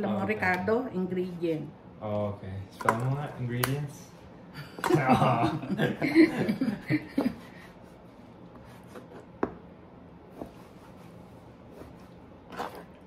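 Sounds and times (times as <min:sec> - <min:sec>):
kitchen clicks and taps: 0:02.8 - 0:03.8.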